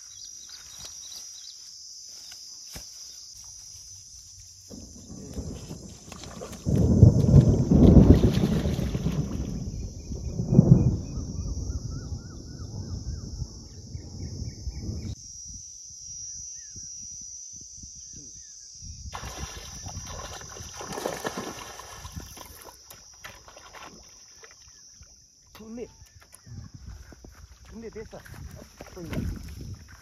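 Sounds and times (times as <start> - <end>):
wind noise: 4.7 - 24.1, 25.6 - 30.0
water sloshing as person wades: 4.8 - 9.6, 19.2 - 25.5
fish thrashing and splashing: 19.2 - 24.8.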